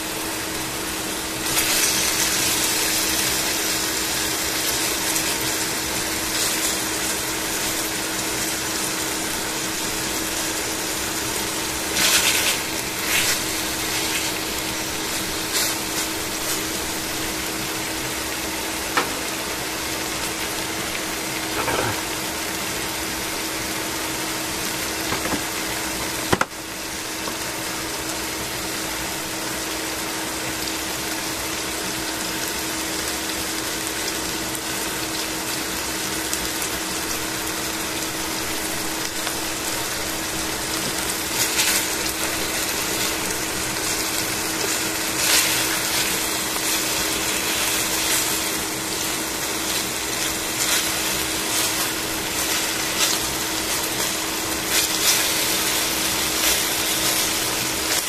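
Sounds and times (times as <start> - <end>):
chicken sizzling in oil: 0.0 - 58.0
clinks and knocks on pan: 21.6 - 22.0.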